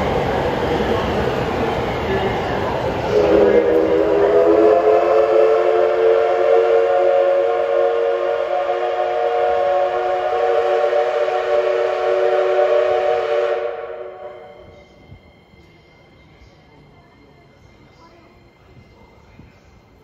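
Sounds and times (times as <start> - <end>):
steam locomotive whistle blast: 3.1 - 14.8.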